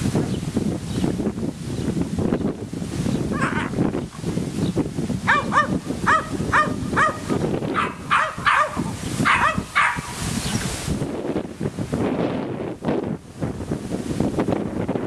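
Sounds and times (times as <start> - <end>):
puppies yipping: 5.3 - 10.2.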